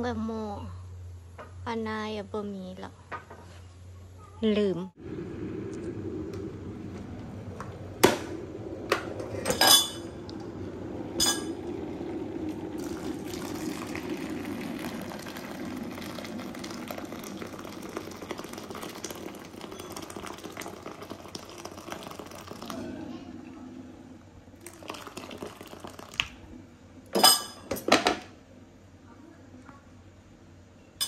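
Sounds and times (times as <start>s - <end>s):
water pouring into steel bowl: 11.2s - 23.0s, 24.6s - 26.2s.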